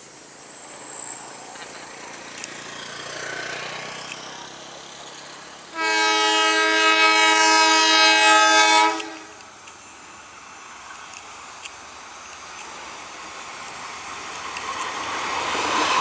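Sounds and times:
locomotive horn blast: 5.7s - 9.4s.

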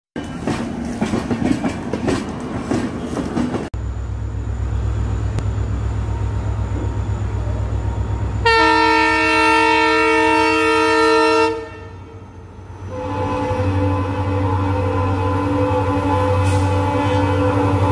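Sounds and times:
train wheels clattering: 0.2s - 3.7s
diesel locomotive rumble: 0.2s - 17.9s
locomotive horn blast: 7.3s - 17.9s.

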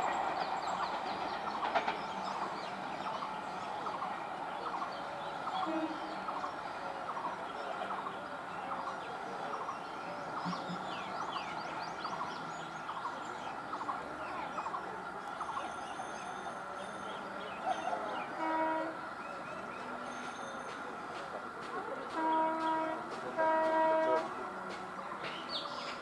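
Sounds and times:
distant trains humming: 0.0s - 26.0s
electric train horn: 5.6s - 6.2s, 18.2s - 19.1s, 22.1s - 24.7s.

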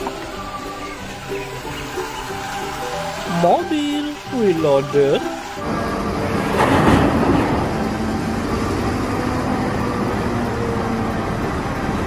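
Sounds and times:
diesel engine running under load: 0.0s - 12.0s.

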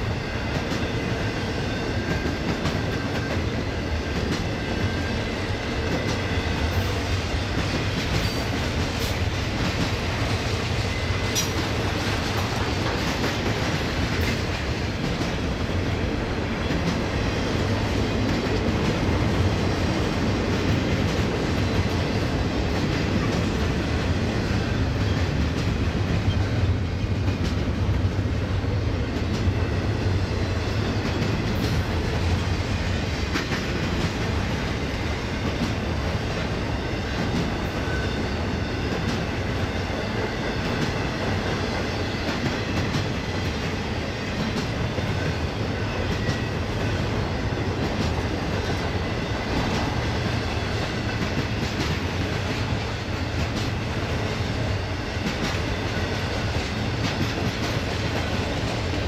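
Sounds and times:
freight train rumbling past: 0.0s - 59.0s.

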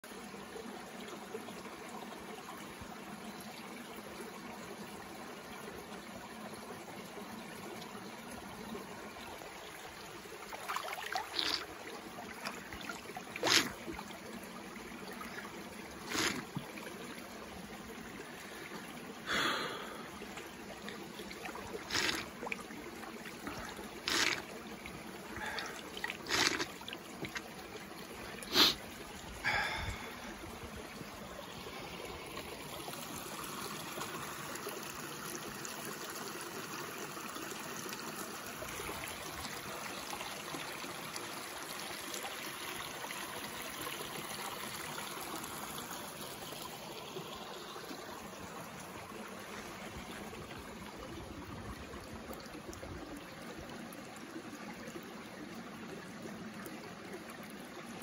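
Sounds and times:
stream trickling over rocks: 0.0s - 58.0s.

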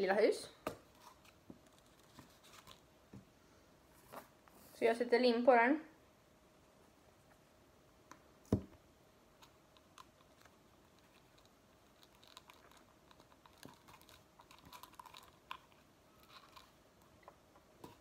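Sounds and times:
paper rustling: 0.9s - 2.8s.

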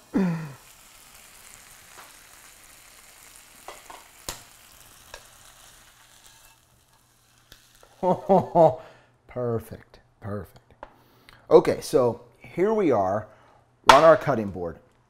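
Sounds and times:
chicken sizzling in frying pan: 0.0s - 8.5s
metal tongs clinking on pan: 3.7s - 5.4s.

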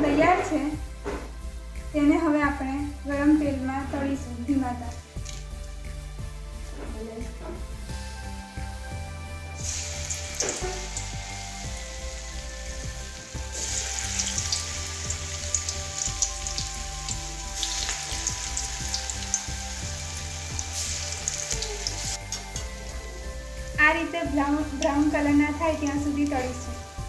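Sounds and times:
batter sizzling in hot oil: 7.6s - 27.0s.

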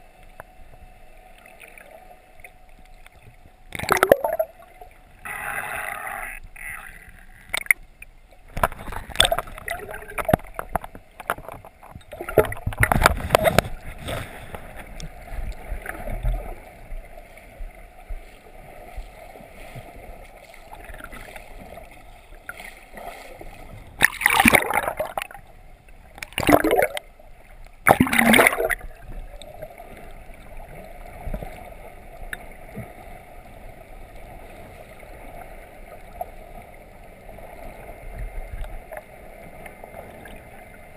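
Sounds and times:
muffled underwater rushing: 0.9s - 7.7s, 8.4s - 40.9s
water splashing surges: 8.5s - 25.4s, 26.2s - 40.9s.

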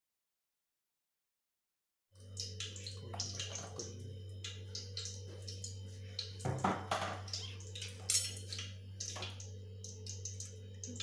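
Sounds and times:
steady low hum: 2.2s - 11.0s
hot oil sizzling in a frying pan: 6.2s - 11.0s.

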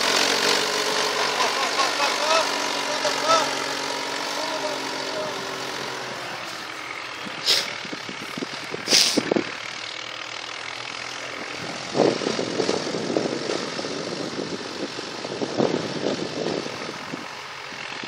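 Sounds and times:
tractor engine running: 0.0s - 18.0s
hissing bursts: 7.4s - 7.9s, 8.8s - 9.3s.

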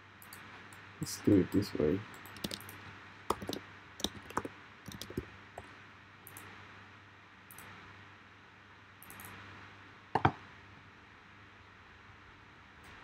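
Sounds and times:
low hiss: 0.0s - 13.0s
mouse clicks: 2.1s - 5.2s, 9.0s - 9.4s
keyboard keystrokes: 2.2s - 5.3s.

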